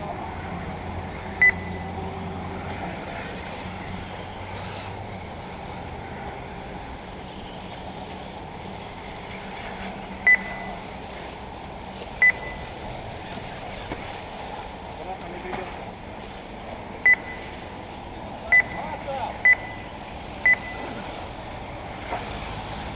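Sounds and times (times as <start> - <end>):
outdoor background noise: 0.0 - 22.9
short high electronic beeps: 1.4 - 1.8, 10.3 - 10.9, 12.2 - 12.8, 17.0 - 17.6, 18.5 - 21.0.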